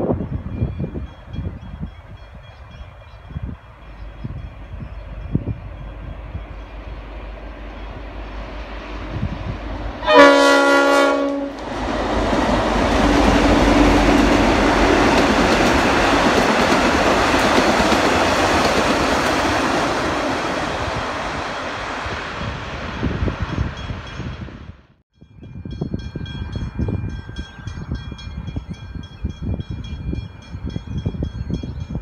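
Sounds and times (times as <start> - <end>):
train passing on rails: 0.0 - 32.0
train horn blast: 9.9 - 11.8.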